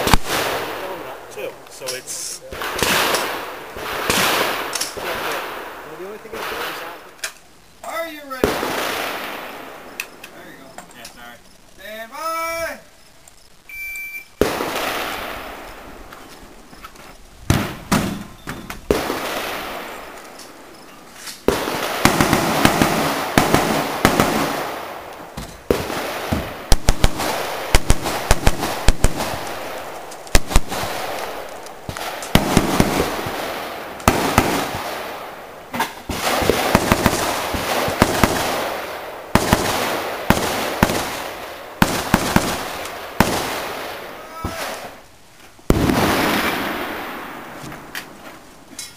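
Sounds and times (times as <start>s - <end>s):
rifle shots with echo: 0.0s - 7.0s, 8.3s - 10.0s, 14.4s - 16.0s, 18.9s - 20.2s, 21.4s - 45.0s, 45.7s - 48.2s.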